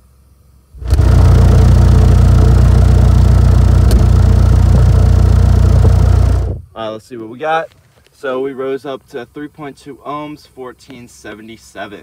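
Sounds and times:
subwoofer deep drone test tone: 0.7 - 6.7.

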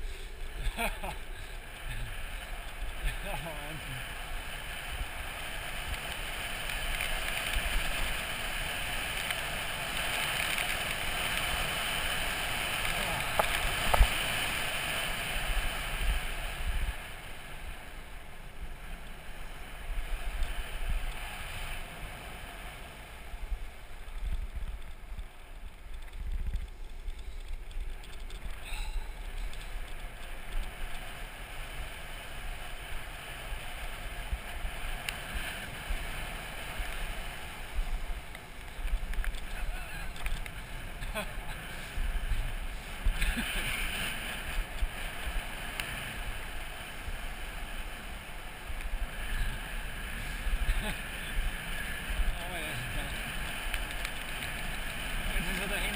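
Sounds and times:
skateboard wheels rolling on asphalt: 0.0 - 55.9
wind rushing over microphone: 18.6 - 55.9.

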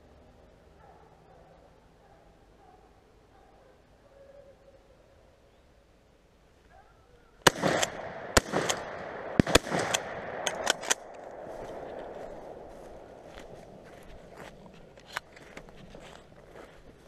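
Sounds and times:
footsteps crunching through frosted grass: 9.6 - 17.0
sharp clicks of gear handled: 9.9 - 11.3.

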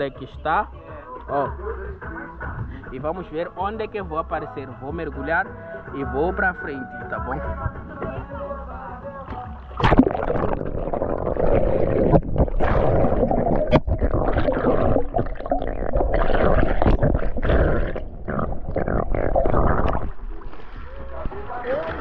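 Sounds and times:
underwater knocks and gurgles: 9.7 - 22.0
underwater water churning: 9.7 - 22.0.

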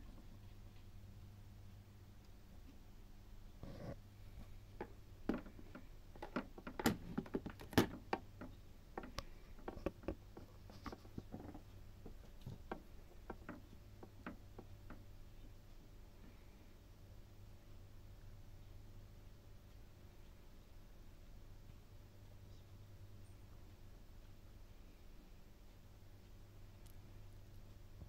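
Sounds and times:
faint low hum: 0.0 - 28.0
sharp clicks and light taps: 4.5 - 15.8.

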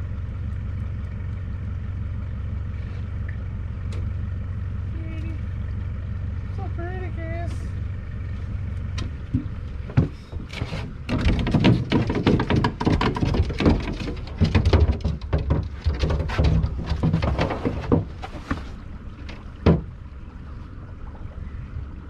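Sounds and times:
low steady rumble: 0.0 - 22.0
boots knocking on metal boat: 19.6 - 19.9.

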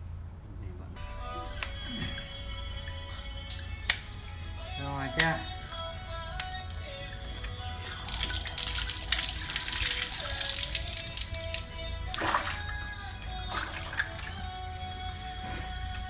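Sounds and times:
background music: 1.0 - 16.0
water pouring into metal basin: 7.6 - 14.4
short water splashes: 7.6 - 14.6.

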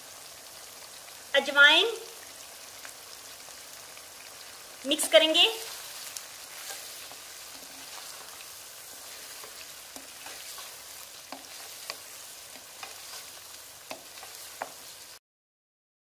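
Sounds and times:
meat sizzling in hot oil: 0.0 - 15.2
spatula knocking and scraping pan: 6.5 - 14.9.

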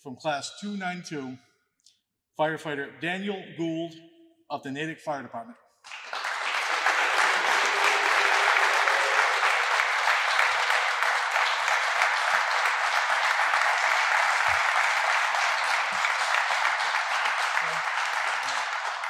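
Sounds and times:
audience applauding: 5.9 - 19.0.

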